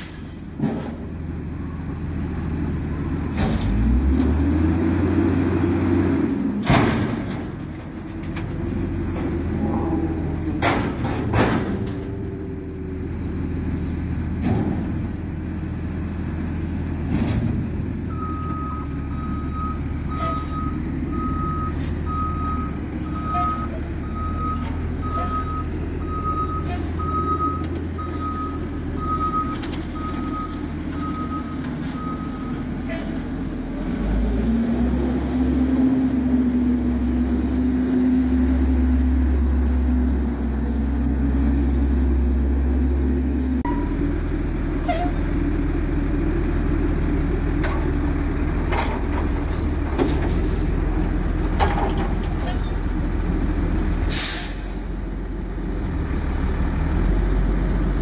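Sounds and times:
diesel engine revving: 0.0s - 58.0s
reversing alarm beeps: 18.1s - 32.6s.

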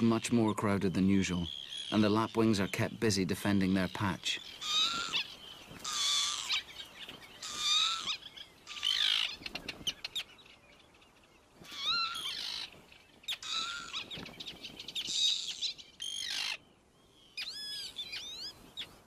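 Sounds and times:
lapwing calls: 0.9s - 2.8s, 3.6s - 10.4s, 11.6s - 16.7s, 17.3s - 19.0s.

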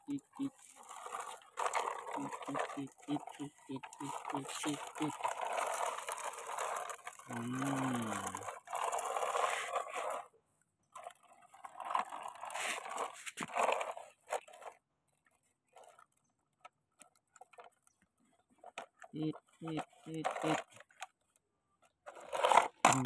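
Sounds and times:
plastic toys scraping and rattling: 0.0s - 23.0s.

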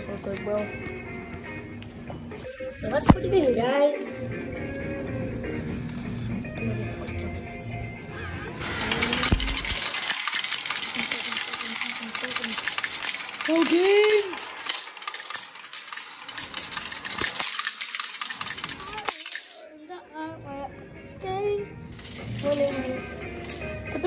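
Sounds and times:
tokens clattering into metal cup: 8.6s - 19.7s, 22.0s - 24.0s.

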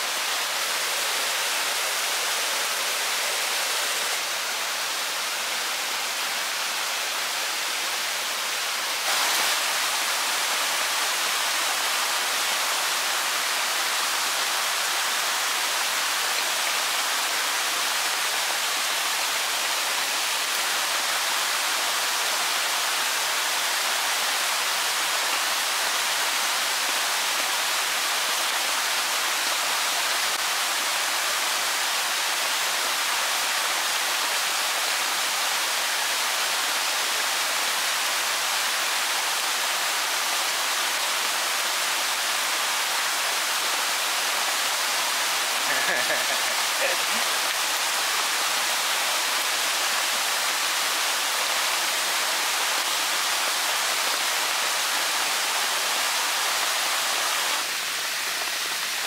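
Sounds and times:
stream rushing over rocks: 0.0s - 59.0s.

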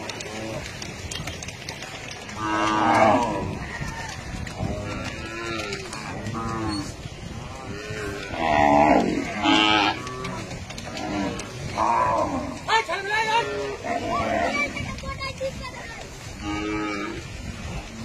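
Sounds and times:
cattle mooing: 2.3s - 3.8s, 4.6s - 14.7s, 16.4s - 17.3s.

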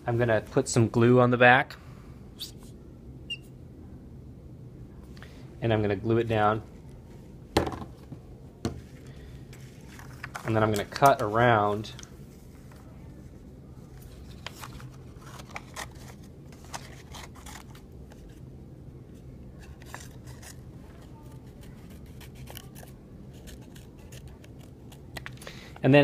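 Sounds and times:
scissors cutting paper: 15.2s - 18.3s, 19.7s - 25.3s.

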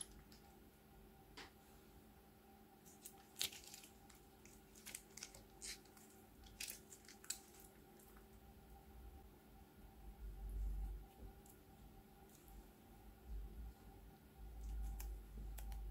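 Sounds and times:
plastic bag crinkling: 2.9s - 7.8s.

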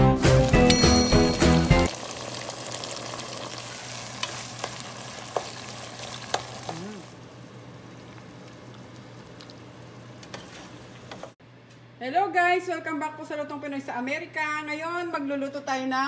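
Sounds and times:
pot sizzling while stirred: 0.2s - 11.4s
musical jingle: 0.3s - 1.9s.

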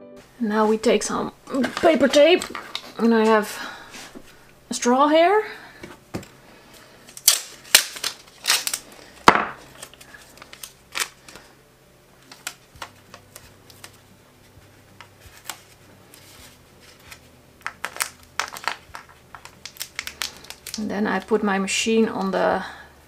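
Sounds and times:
paper tape crinkling: 1.5s - 4.4s, 6.7s - 11.5s, 12.2s - 21.4s.

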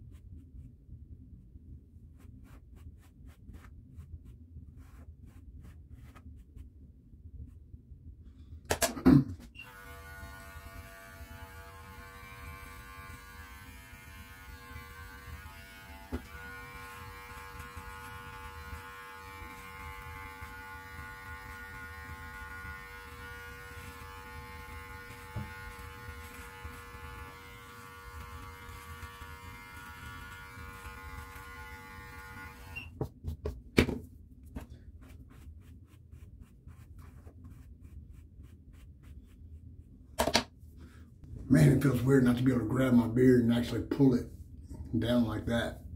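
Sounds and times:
electric clippers buzzing: 9.6s - 32.9s.

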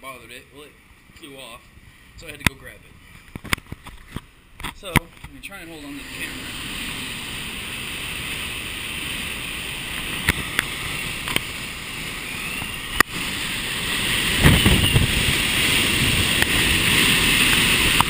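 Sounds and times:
wind and rain rushing: 0.8s - 18.0s
wind buffeting microphone: 6.0s - 18.0s.

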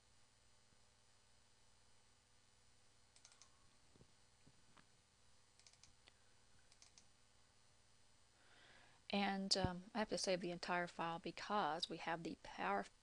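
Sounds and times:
computer mouse clicks: 3.2s - 3.6s, 5.6s - 7.1s.

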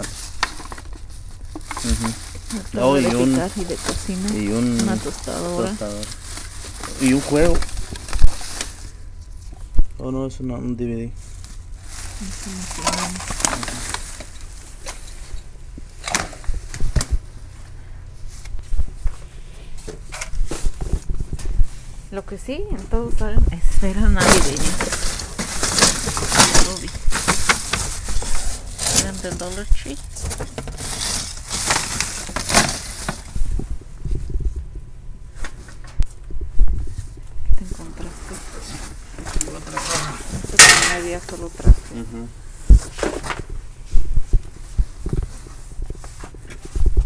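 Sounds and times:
plastic bag rustling: 0.0s - 9.7s, 11.2s - 22.1s, 23.8s - 34.7s, 36.7s - 42.0s.

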